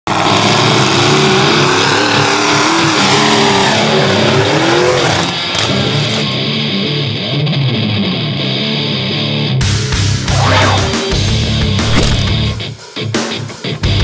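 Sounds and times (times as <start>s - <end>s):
truck engine revving hard: 0.1s - 6.5s.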